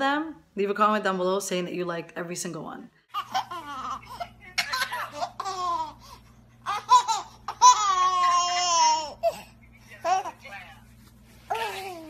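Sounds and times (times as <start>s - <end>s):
steady low hum: 0.0s - 12.0s
baby laughing: 3.1s - 10.4s, 11.5s - 12.0s.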